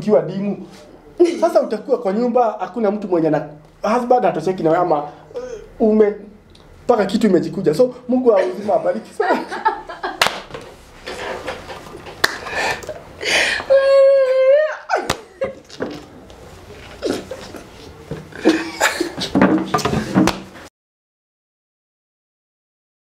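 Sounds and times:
laughter: 0:08.4 - 0:10.3, 0:14.7 - 0:15.7, 0:18.4 - 0:19.3.

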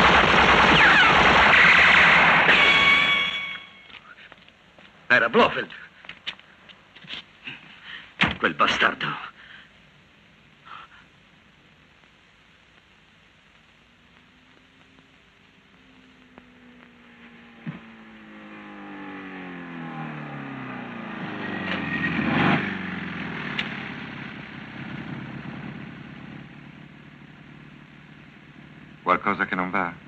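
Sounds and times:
motorcycle engine approaching: 0:15.6 - 0:30.0.

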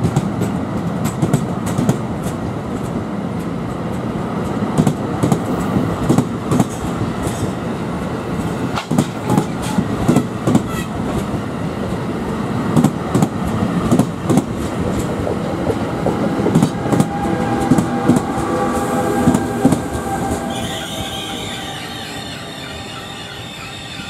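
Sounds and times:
train wheels clicking over rail joints: 0:00.0 - 0:21.2
high wheel squeal: 0:18.4 - 0:24.0.

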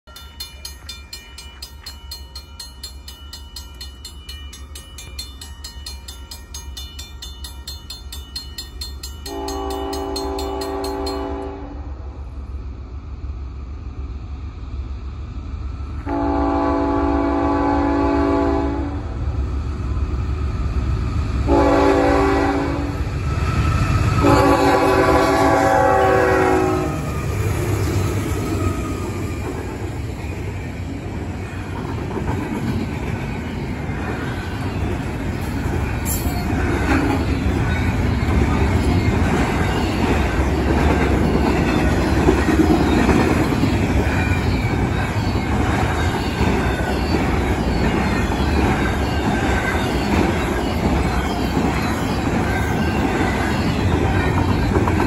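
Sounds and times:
railroad crossing bell ringing: 0:00.0 - 0:11.6, 0:24.1 - 0:55.0
train rumble: 0:00.0 - 0:55.0
locomotive air horn: 0:09.3 - 0:11.9, 0:16.0 - 0:19.1, 0:21.5 - 0:23.0, 0:24.2 - 0:27.1.

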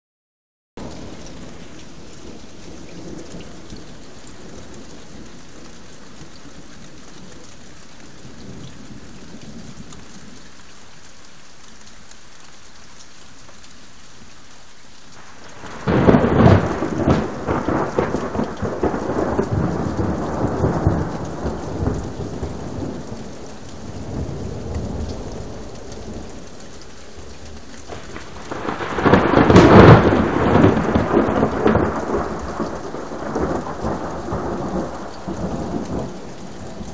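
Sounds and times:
rain: 0:00.8 - 0:36.9
thunder rumbling: 0:15.2 - 0:36.9.

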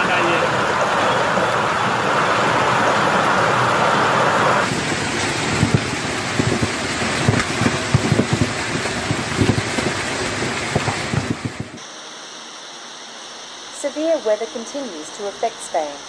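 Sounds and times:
hail and rain hissing in wind: 0:00.0 - 0:11.8
hailstones knocking on surfaces: 0:04.6 - 0:11.8.

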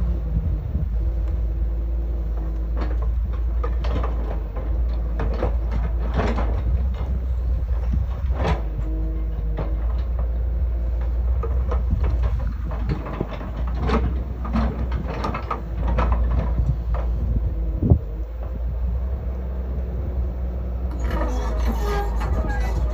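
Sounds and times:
diesel engine running: 0:00.0 - 0:22.9
excavator bucket knocks and clanks: 0:02.3 - 0:19.4.

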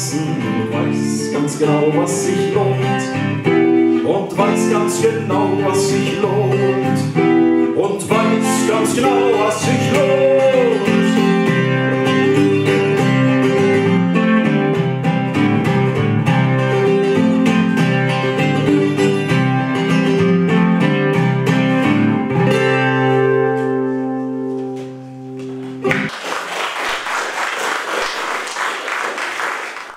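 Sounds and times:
acoustic guitar picking: 0:00.0 - 0:26.1
audience applauding: 0:25.4 - 0:29.9.

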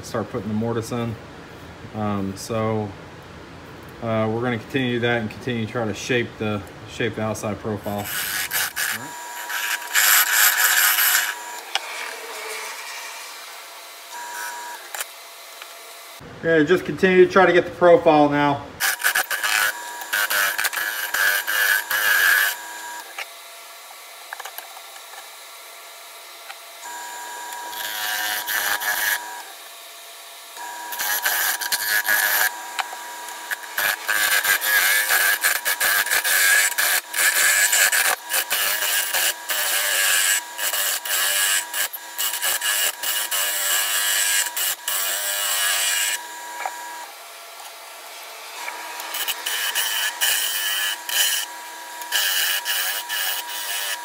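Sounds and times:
turning tool scraping wood: 0:07.8 - 0:13.6, 0:18.8 - 0:23.3, 0:27.5 - 0:29.5, 0:30.9 - 0:46.8, 0:47.6 - 0:54.0
lathe motor hum: 0:08.0 - 0:16.2, 0:25.2 - 0:54.0.

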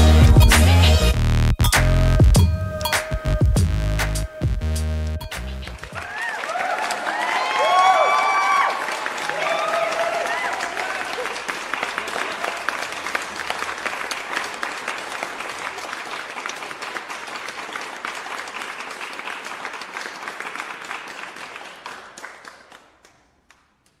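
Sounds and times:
audience applause: 0:05.7 - 0:23.6.

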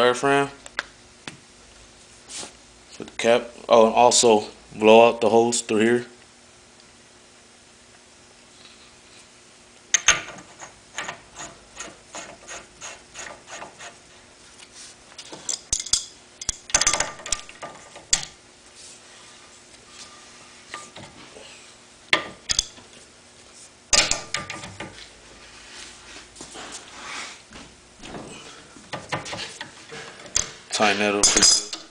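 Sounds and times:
wrench clicking on metal cap: 0:22.5 - 0:22.7.

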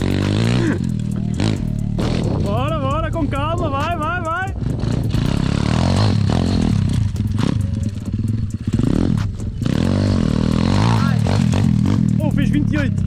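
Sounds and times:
motorbike engine revving: 0:00.0 - 0:13.0.

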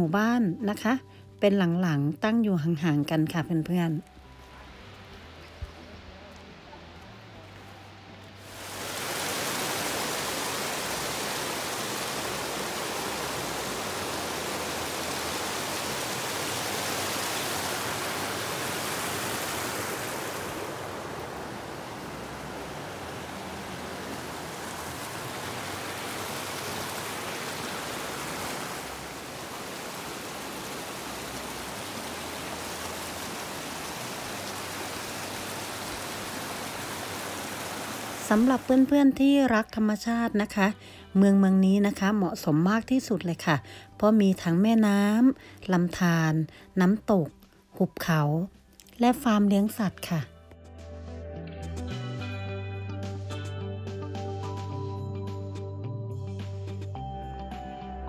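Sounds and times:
waterfall rushing: 0:08.4 - 0:38.8.

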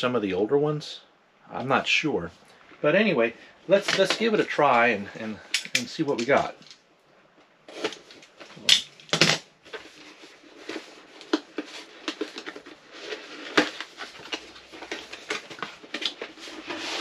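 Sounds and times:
cardboard and tape crackling: 0:07.7 - 0:17.0.

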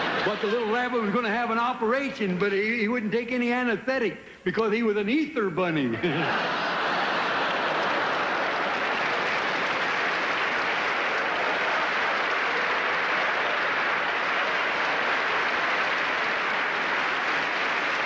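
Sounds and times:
large audience applauding: 0:00.0 - 0:01.1, 0:06.1 - 0:18.0.

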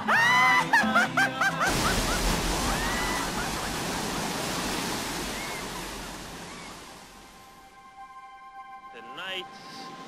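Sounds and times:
ocean surf rushing: 0:01.7 - 0:07.7.

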